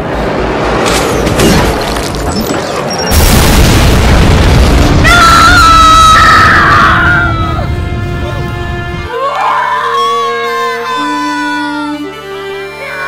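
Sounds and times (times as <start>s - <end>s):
loud rumbling boom: 3.1s - 5.9s
dramatic music: 5.6s - 13.0s.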